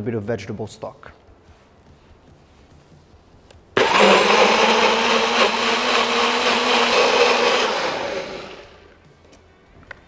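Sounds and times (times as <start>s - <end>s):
blender running: 3.8s - 8.8s.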